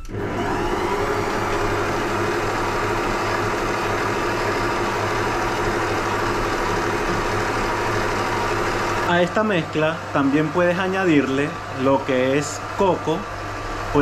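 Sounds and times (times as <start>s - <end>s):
stand mixer running: 0.0s - 14.0s.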